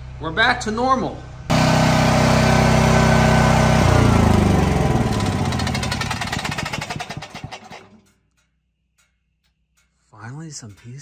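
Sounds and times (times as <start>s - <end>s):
generator engine running and stopping: 1.4s - 8.4s.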